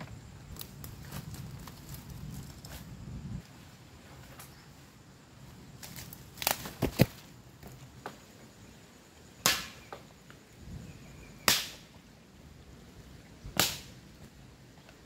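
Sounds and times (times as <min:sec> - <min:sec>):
dry branches snapping: 0:00.5 - 0:02.8, 0:05.8 - 0:07.3.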